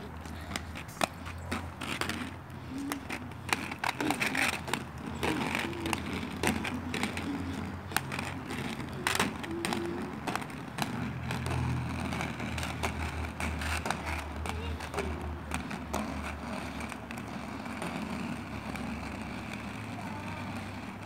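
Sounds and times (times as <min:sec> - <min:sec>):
clicks and scrapes of strides: 0:00.0 - 0:21.0
skate wheels rumbling on asphalt: 0:00.0 - 0:21.0.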